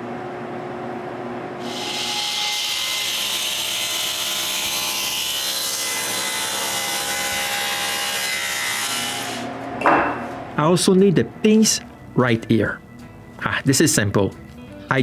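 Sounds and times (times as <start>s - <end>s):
table saw cutting wood: 1.6s - 9.6s.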